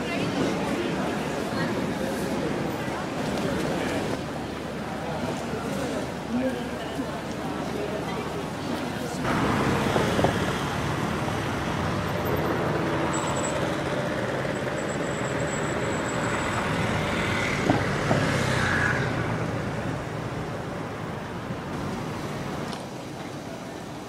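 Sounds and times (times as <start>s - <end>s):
passing vehicles: 9.0s - 23.0s.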